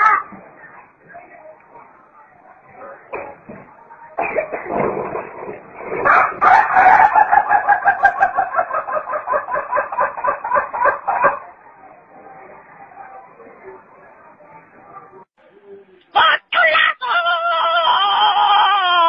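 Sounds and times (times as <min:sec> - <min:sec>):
rooster crowing: 0:06.0 - 0:08.6.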